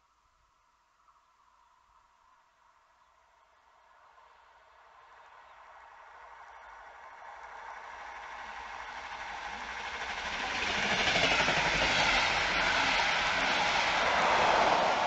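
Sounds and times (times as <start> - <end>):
train rolling past: 6.6 - 15.0.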